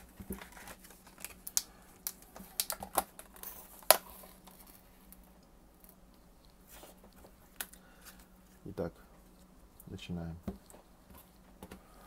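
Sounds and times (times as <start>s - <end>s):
plastic packaging clicks and taps: 1.4s - 4.0s.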